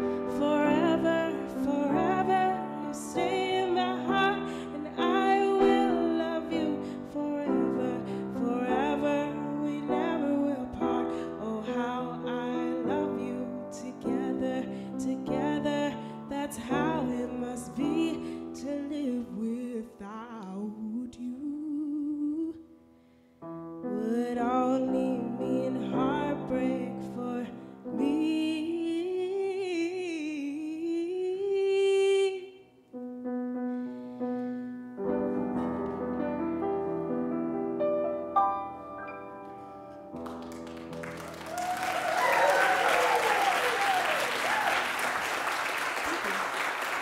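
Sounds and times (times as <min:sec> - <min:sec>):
grand piano chords: 0:00.0 - 0:19.8, 0:23.4 - 0:29.2, 0:32.9 - 0:42.0
woman singing a soul ballad: 0:00.1 - 0:22.6, 0:23.9 - 0:32.6.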